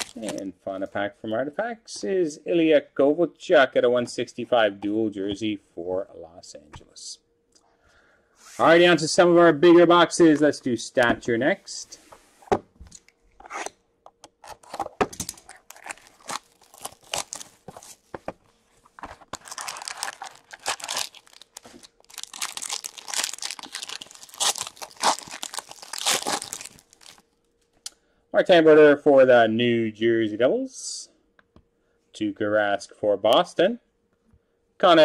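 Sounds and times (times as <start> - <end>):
foil wrapper tearing: 0.0 - 0.4, 15.3 - 17.6, 19.3 - 27.2
plastic crinkling: 0.0 - 0.5, 14.4 - 18.1, 18.8 - 27.3.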